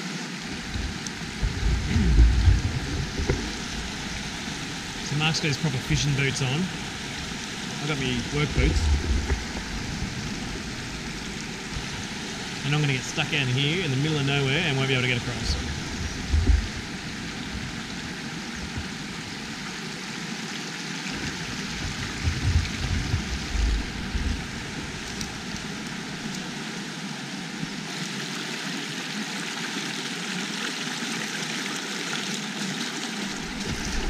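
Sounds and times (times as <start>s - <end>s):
river rushing over rocks: 0.0s - 34.0s
low rumbles: 0.5s - 19.8s, 21.3s - 26.6s.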